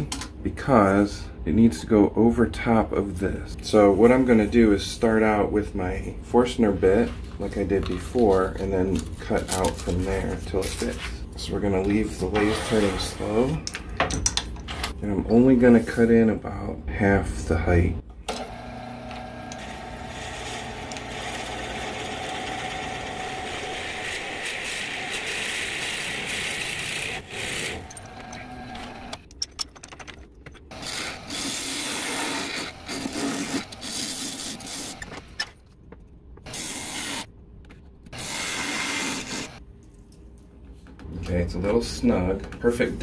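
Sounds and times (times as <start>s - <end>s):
turning tool cutting wood: 18.3s - 29.2s, 30.7s - 35.3s, 38.1s - 39.6s
drill bit boring into spinning wood: 18.5s - 29.2s.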